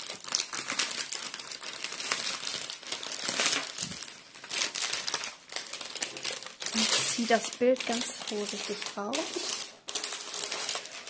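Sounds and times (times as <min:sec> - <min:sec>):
plastic film crinkling: 0:00.0 - 0:11.0.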